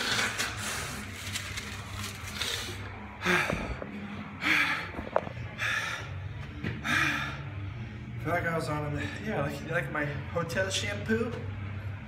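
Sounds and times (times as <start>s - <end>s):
man breathing hard and gasping: 2.4s - 8.0s.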